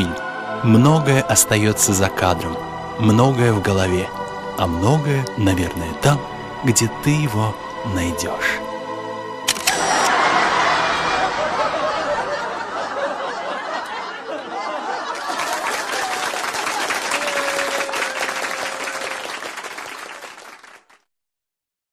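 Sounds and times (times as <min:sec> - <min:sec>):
crowd laughing and chattering: 0:09.5 - 0:19.4
crowd applause: 0:09.7 - 0:21.1.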